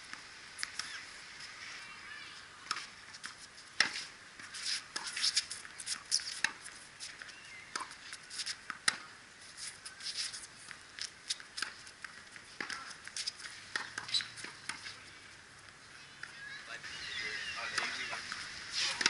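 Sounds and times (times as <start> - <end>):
tennis ball bouncing: 2.6 - 9.1, 9.8 - 15.0
racquets striking tennis ball: 2.6 - 15.0.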